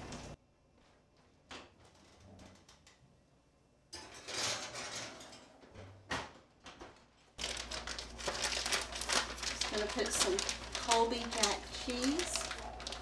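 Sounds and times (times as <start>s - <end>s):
glass dish scraping on oven rack: 4.0s - 5.6s.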